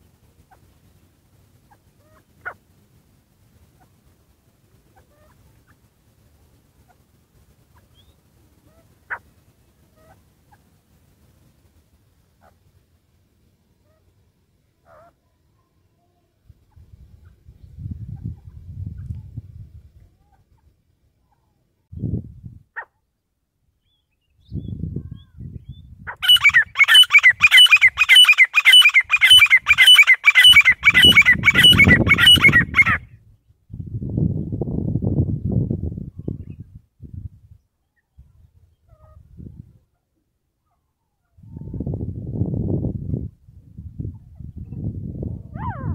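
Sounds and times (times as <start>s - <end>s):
bird chirping calls: 23.8s - 33.0s.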